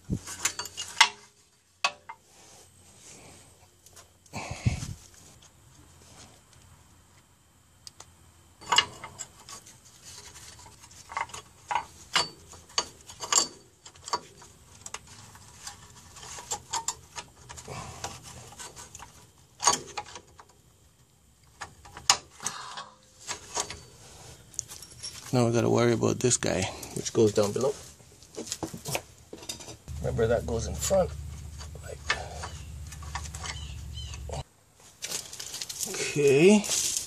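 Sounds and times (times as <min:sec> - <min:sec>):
small clicks and knocks of parts: 0:06.5 - 0:23.8, 0:31.6 - 0:34.3
rubbing of parts: 0:08.6 - 0:20.3, 0:31.2 - 0:35.9.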